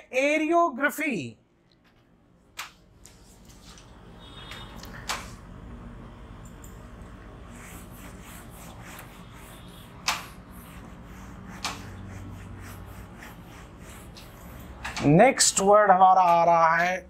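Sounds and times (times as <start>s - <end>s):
eraser rubbing on whiteboard: 7.5s - 14.8s.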